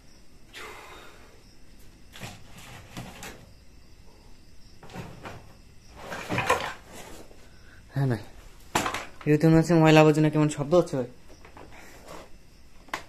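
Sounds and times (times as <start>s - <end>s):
plastic basket scraping on brick: 2.1s - 3.4s, 5.9s - 7.2s.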